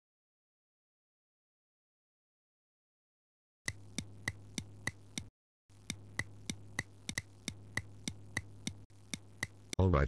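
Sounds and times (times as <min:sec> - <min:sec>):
clock ticking: 0:03.7 - 0:09.9
low steady hum: 0:03.7 - 0:10.0.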